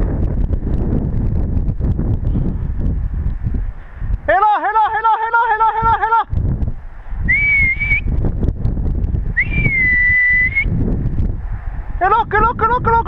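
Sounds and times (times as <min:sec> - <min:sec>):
low rustling noise: 0:00.0 - 0:04.3
high whistled notes: 0:07.2 - 0:08.2, 0:09.4 - 0:10.7.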